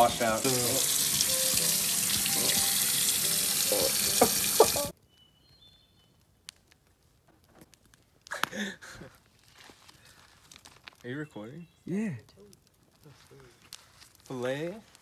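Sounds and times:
faucet water running into sink: 0.0 - 4.9.

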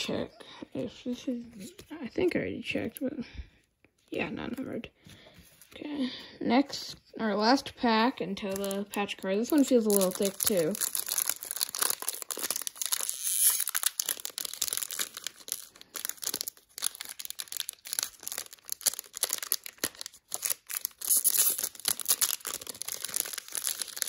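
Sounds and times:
foil wrapper crinkling: 8.4 - 24.0.

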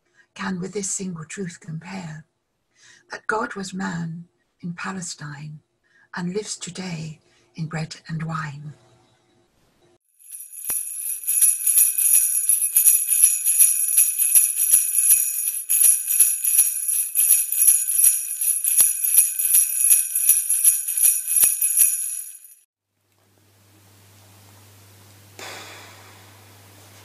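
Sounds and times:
sleigh bells shaken: 10.2 - 22.7.

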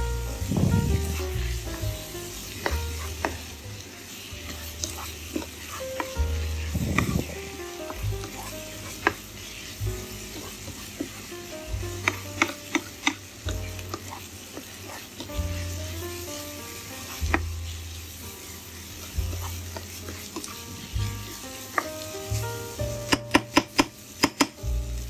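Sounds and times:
food sizzling in pan: 0.0 - 25.0
spatula stirring and scraping: 0.0 - 25.0
spatula clicking against pan: 12.0 - 13.2, 23.1 - 24.6.

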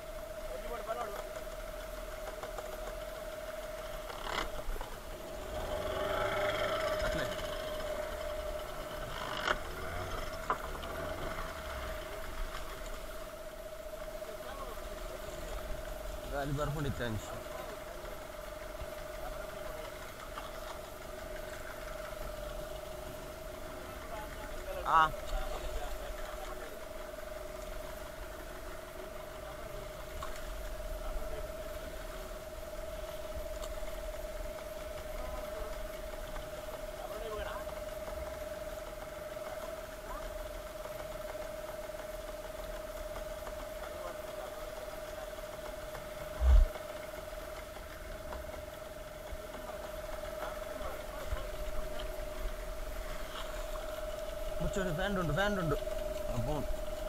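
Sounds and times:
boat engine idling with whine: 0.0 - 57.0
steady hum: 0.0 - 57.0
water: 0.0 - 57.0
wind noise: 46.4 - 46.7.

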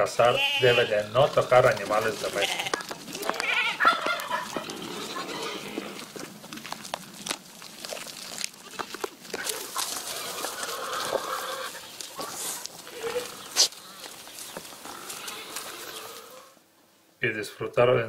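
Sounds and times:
livestock bleating: 0.0 - 6.1, 8.6 - 9.1, 14.8 - 16.6
small clicks and rustles: 1.7 - 16.4.

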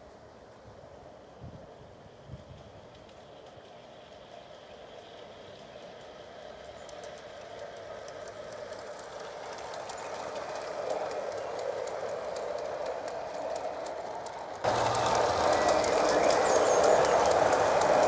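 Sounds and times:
model train wheels rumbling: 0.1 - 18.0
clicking over rail joints: 5.7 - 18.0.

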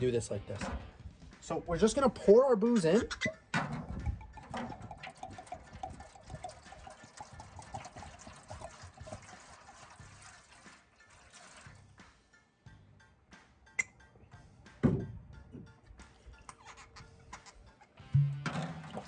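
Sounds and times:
bottle neck glugging: 3.0 - 6.1
liquid pouring into foil pan: 4.0 - 11.9, 18.5 - 19.0.

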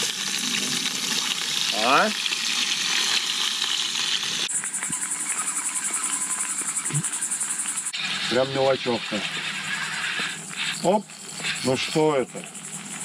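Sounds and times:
potatoes sizzling in a pan: 0.0 - 6.7
insects chirping: 0.0 - 13.0.

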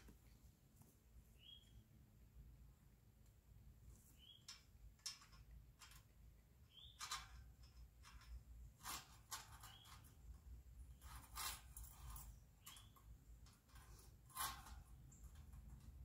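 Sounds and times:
faint bird chirps: 1.4 - 2.0, 4.1 - 4.6, 6.6 - 7.2, 12.6 - 13.1
wire fencing clicks and scrapes: 4.0 - 16.0.

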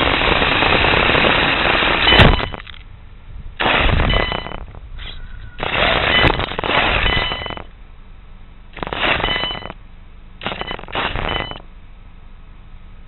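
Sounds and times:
rc buggy motor bursts: 0.0 - 2.5, 3.6 - 4.6, 5.6 - 7.7, 8.8 - 9.8, 10.4 - 11.6
faint high whine: 0.0 - 13.0.

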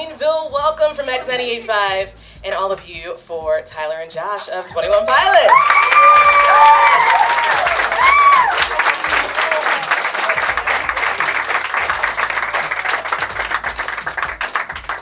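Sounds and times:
audience clapping and cheering: 4.9 - 15.0
shrill high cheer: 5.0 - 14.2.

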